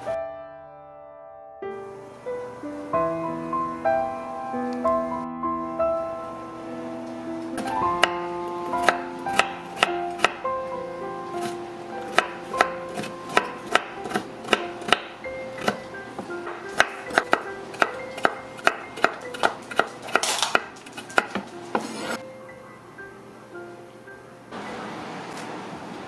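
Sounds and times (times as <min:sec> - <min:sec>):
soft background music: 0:00.0 - 0:24.9
knife chopping on wooden board: 0:08.8 - 0:10.4, 0:11.4 - 0:15.8, 0:16.4 - 0:22.2
knife scraping: 0:20.1 - 0:22.2.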